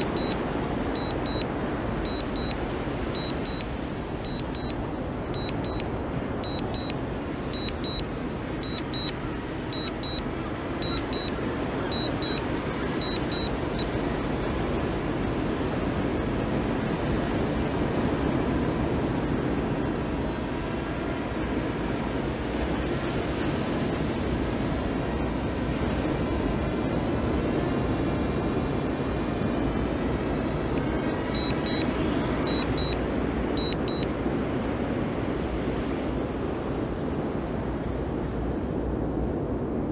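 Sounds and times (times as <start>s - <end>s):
remote controller double beeps: 0.0s - 0.4s, 1.0s - 14.0s, 30.7s - 33.0s, 33.6s - 34.1s
steady rushing noise: 0.0s - 39.9s.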